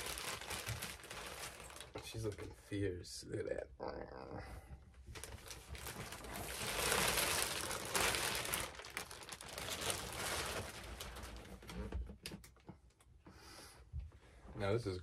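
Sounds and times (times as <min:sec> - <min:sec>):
plastic packaging crinkling: 0:00.0 - 0:02.4, 0:05.1 - 0:12.0.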